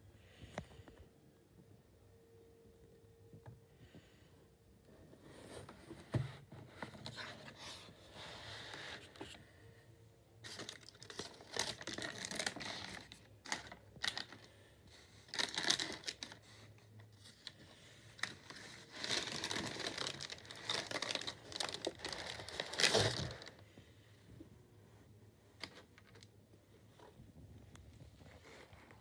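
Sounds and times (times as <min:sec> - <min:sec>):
tissue paper crinkling: 0:10.4 - 0:14.5, 0:15.2 - 0:17.6, 0:18.2 - 0:23.6.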